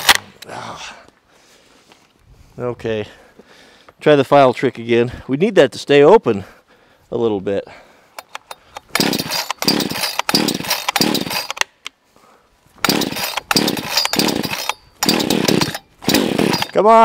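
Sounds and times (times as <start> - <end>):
recoil starter cord rips: 8.2 - 11.8, 12.8 - 16.8.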